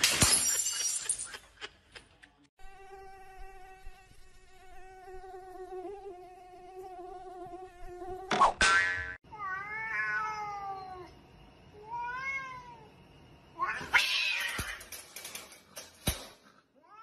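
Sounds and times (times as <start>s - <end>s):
cat meowing: 9.3s - 11.1s, 11.8s - 12.9s.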